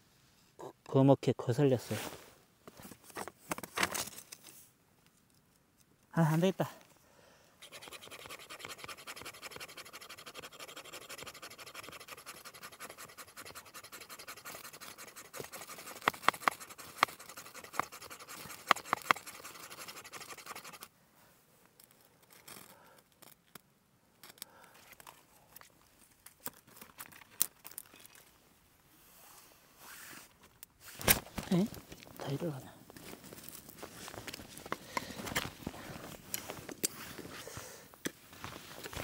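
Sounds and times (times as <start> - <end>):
striker scraping ferro rod: 7.6 - 20.9
faint crackles: 29.2 - 39.0
leaves rustling: 29.5 - 39.0.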